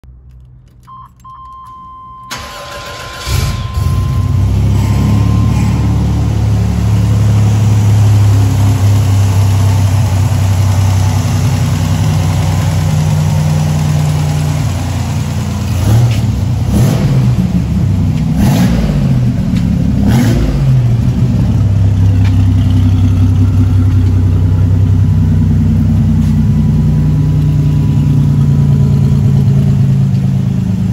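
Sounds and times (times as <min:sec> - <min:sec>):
car engine starting and revving: 0:02.3 - 0:30.9
electronic chime tone: 0:03.3 - 0:06.7.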